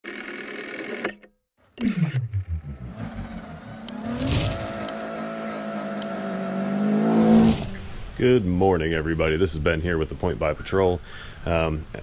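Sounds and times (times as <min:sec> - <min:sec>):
car engine revving: 0:01.8 - 0:07.9.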